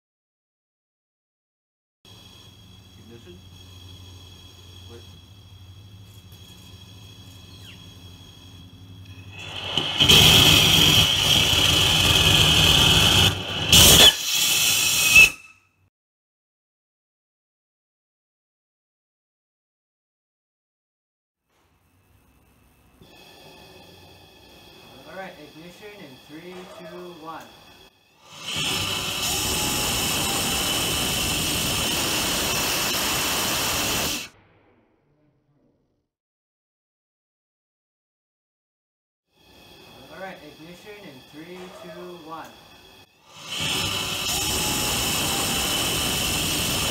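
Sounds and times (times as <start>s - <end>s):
rocket motor roaring: 2.1s - 15.5s, 23.0s - 34.7s, 39.5s - 46.9s.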